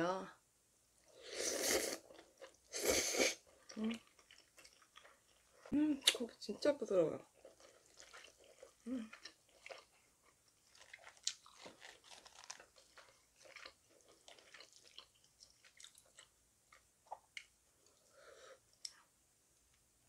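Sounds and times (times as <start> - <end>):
close chewing with wet clicks: 3.4 - 18.0.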